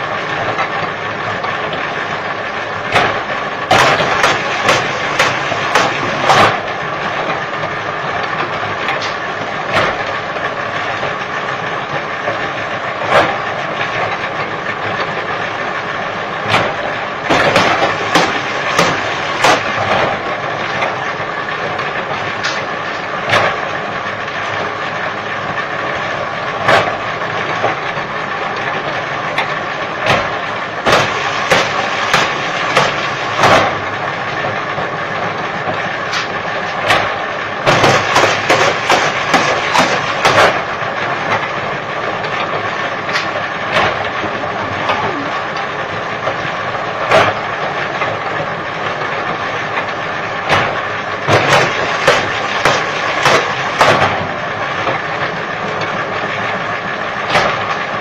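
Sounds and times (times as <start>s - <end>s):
bamboo cracking and clacking: 21.7s - 23.6s, 36.1s - 41.5s, 49.3s - 54.2s, 57.3s - 57.9s
machine humming with whine: 43.0s - 46.5s.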